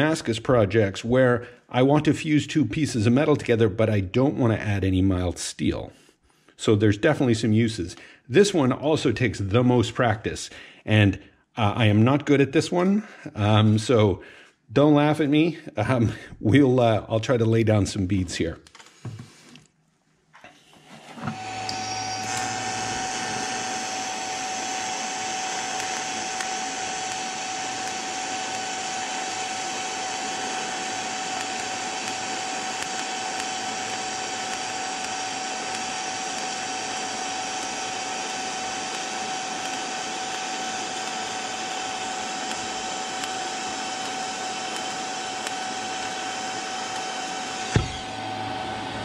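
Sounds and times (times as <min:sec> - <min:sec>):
welding arc hissing and whining: 0:00.0 - 0:01.5, 0:21.3 - 0:49.0.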